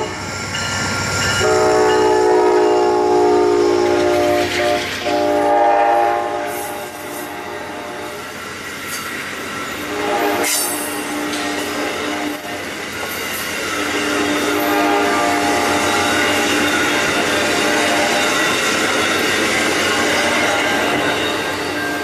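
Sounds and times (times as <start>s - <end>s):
locomotive horn blasts: 1.4s - 8.2s, 9.8s - 12.6s, 13.8s - 16.1s
train wheels clattering on rails: 8.2s - 22.0s.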